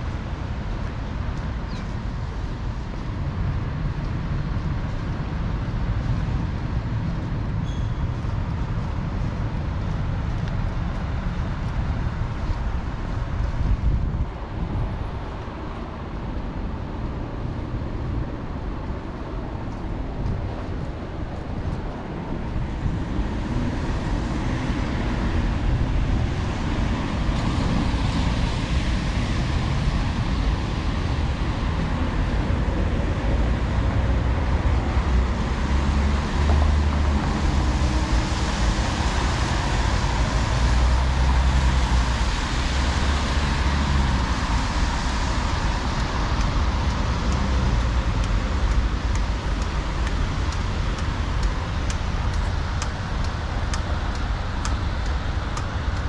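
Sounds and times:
low rumble of traffic: 0.0s - 56.0s
tyre hiss of passing vehicles: 20.6s - 56.0s.

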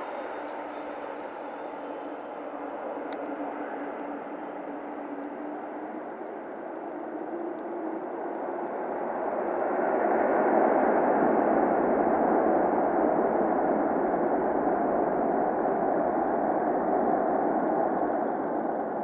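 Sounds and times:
jet engine noise: 0.0s - 19.0s.

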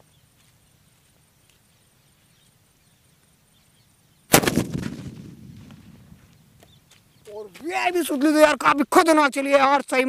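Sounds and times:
firecracker bang: 4.3s - 6.3s
rumble: 4.6s - 6.7s.

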